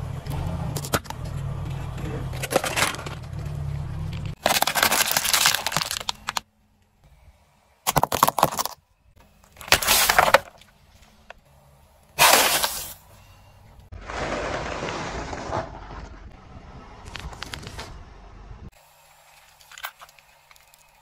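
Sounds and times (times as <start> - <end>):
hard plastic crunching: 4.4 - 6.5, 7.8 - 8.8, 9.4 - 10.7.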